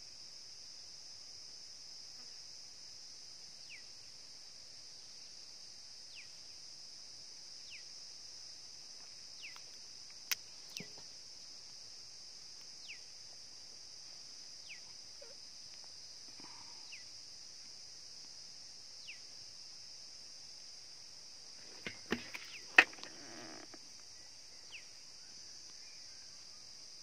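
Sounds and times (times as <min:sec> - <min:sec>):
high-pitched insect drone: 0:21.8 - 0:27.0.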